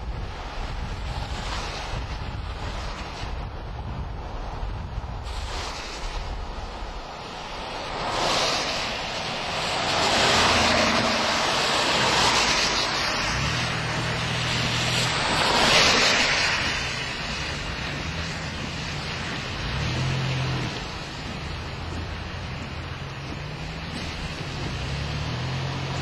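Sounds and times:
gusty wind on microphone: 0.0s - 26.0s
low engine hum: 9.6s - 26.0s.

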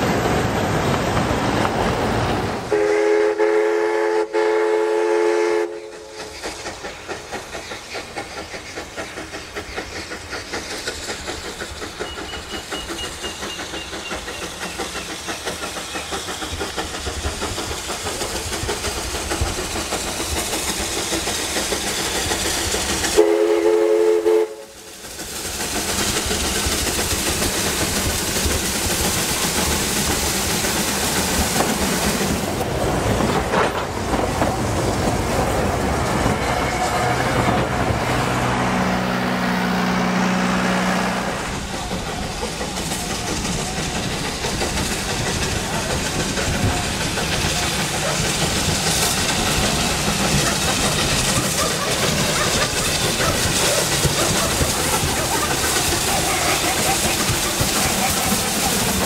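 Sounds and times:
rail and wheel noise: 0.0s - 59.0s
steam locomotive approaching: 0.0s - 59.0s
steam whistle chord: 23.2s - 24.8s.

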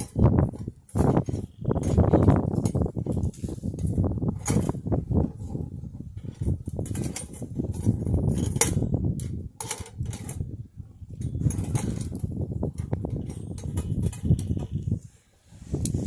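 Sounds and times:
wind: 0.0s - 16.0s
pliers clinking on metal: 11.2s - 14.8s.

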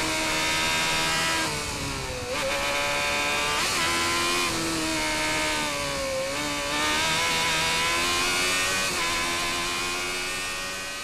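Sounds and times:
race car engine revving: 2.3s - 11.0s.

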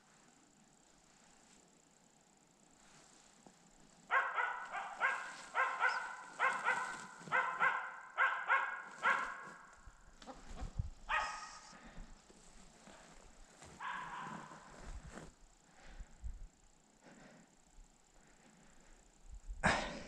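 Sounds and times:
dog barking: 4.1s - 9.7s, 11.1s - 11.7s, 13.8s - 14.7s.

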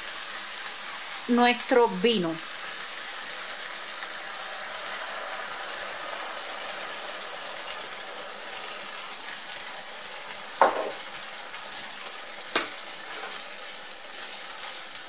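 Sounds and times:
meat sizzling in a frying pan: 0.0s - 15.0s.

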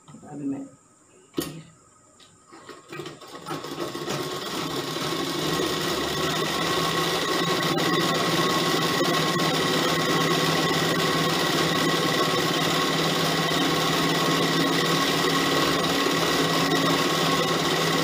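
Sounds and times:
sewing machine running: 2.6s - 18.0s.

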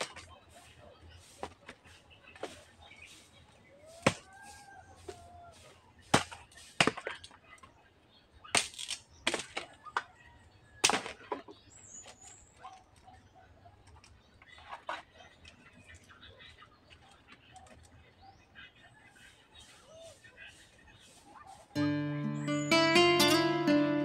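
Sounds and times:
machete chopping wooden pole: 4.0s - 4.3s, 6.1s - 7.2s, 8.5s - 9.7s, 10.8s - 11.4s.

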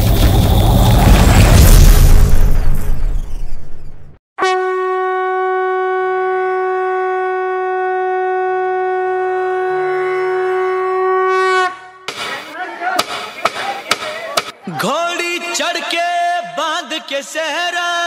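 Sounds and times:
conch shell blown: 4.4s - 12.1s.

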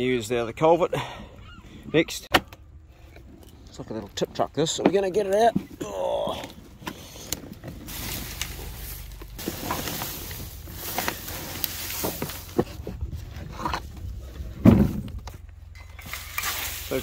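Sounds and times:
bark and leaves rustling: 7.8s - 13.6s, 15.9s - 17.0s
heavy thump: 14.5s - 15.2s.

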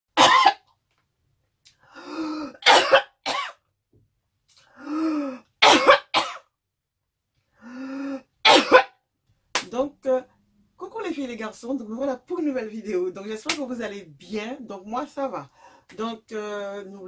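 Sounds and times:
woman coughing: 0.2s - 0.6s, 2.5s - 3.6s, 5.6s - 6.5s, 8.4s - 9.0s.

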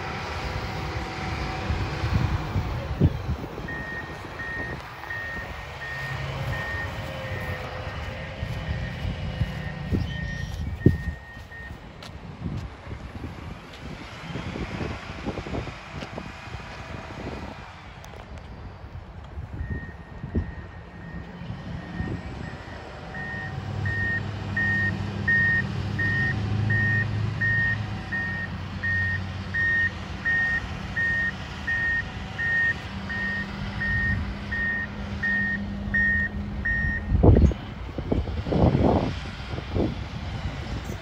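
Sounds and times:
diesel engine running: 0.0s - 41.0s
backup alarm beeping: 3.6s - 7.8s, 8.7s - 11.8s, 19.6s - 37.2s.

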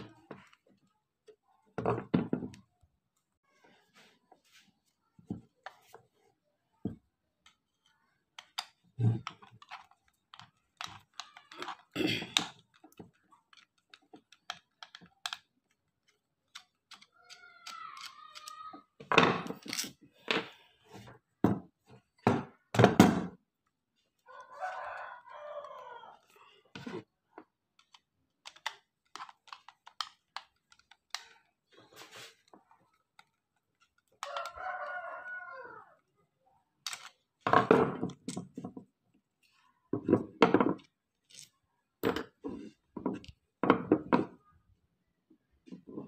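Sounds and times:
knocks and clicks of plastic and metal: 42.0s - 44.4s.

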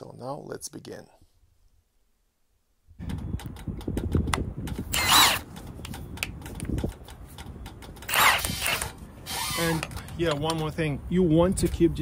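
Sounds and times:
impact wrench bursts: 4.9s - 5.5s, 8.0s - 9.9s.

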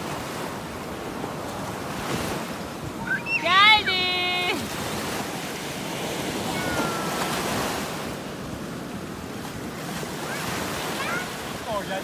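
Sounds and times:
waves washing up on sand: 0.0s - 12.0s
high voice: 3.0s - 4.6s.

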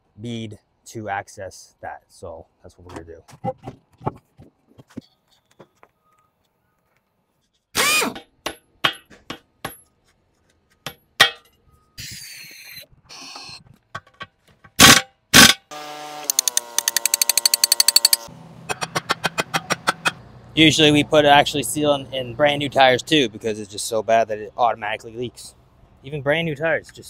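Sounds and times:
metal knocks and clanks: 13.9s - 14.8s
fast mechanical rattle: 16.3s - 20.1s.

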